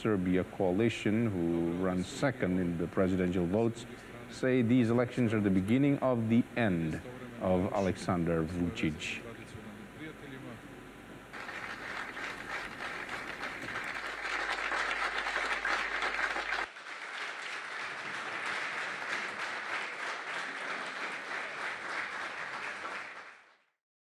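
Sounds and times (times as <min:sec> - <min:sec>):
crowd applauding: 0:11.3 - 0:23.7.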